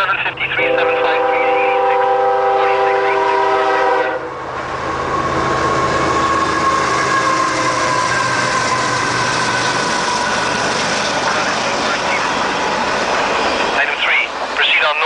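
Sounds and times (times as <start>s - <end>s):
train horn: 0.6s - 9.0s
locomotives passing at speed: 1.8s - 15.0s
hopper cars rumbling and clattering: 4.4s - 15.0s.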